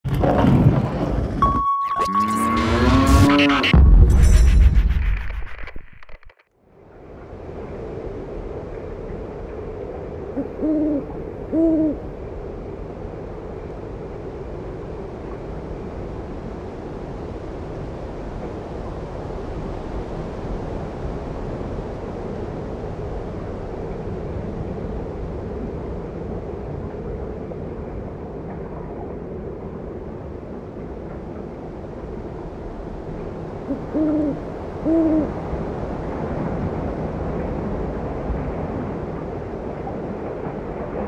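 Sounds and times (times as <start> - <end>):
wind: 0.0 - 41.0
owl hooting: 10.4 - 12.0, 33.7 - 35.4.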